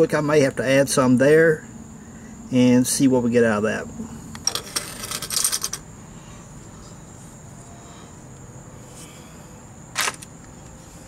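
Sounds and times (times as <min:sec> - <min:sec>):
metal tools clattering: 0:04.4 - 0:05.8.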